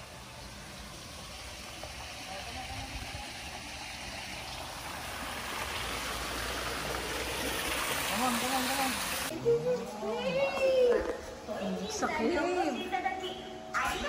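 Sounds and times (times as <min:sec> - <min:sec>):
water splashing over rocks: 0:00.0 - 0:09.3.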